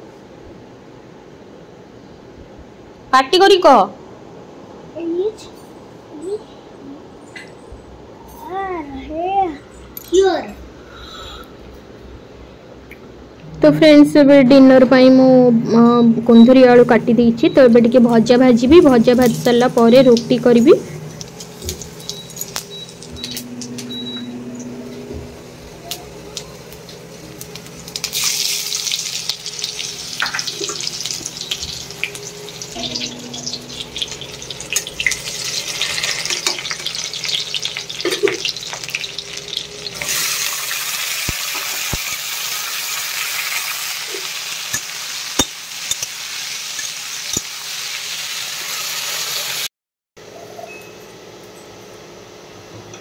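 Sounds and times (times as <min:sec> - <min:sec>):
vegetables frying in hot oil: 0:18.6 - 0:24.2, 0:25.5 - 0:49.7
oil popping: 0:25.9 - 0:42.3.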